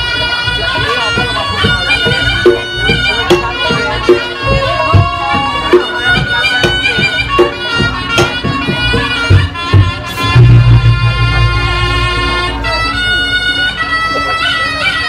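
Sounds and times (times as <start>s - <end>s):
drums: 0.0s - 15.0s
reedy shawm melody: 0.0s - 15.0s
gong-chime percussion: 0.4s - 12.8s.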